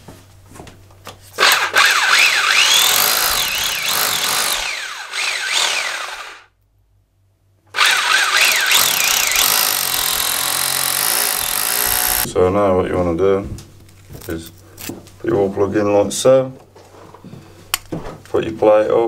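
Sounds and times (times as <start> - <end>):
electric drill boring into wall: 1.4 - 6.5, 7.7 - 12.3.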